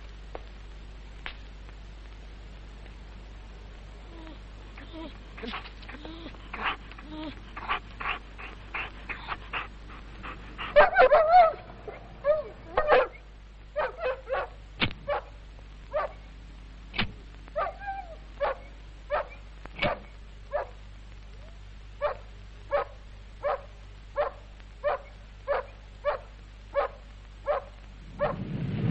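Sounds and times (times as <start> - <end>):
dog whining: 4.1 - 13.2
dog yelping barks: 10.6 - 13.2, 13.8 - 15.3, 15.9 - 16.2, 17.6 - 20.8, 22.0 - 28.4.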